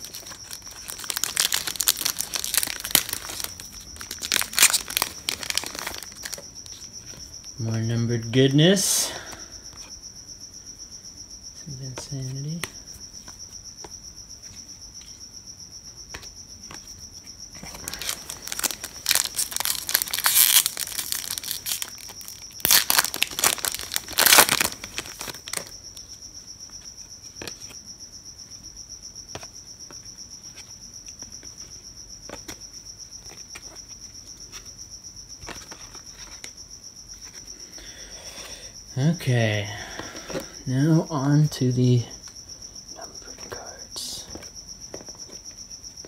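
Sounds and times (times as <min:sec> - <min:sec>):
foil wrapper crinkling and tearing: 0:00.0 - 0:06.4, 0:17.6 - 0:25.7
cricket chirping: 0:00.0 - 0:46.0.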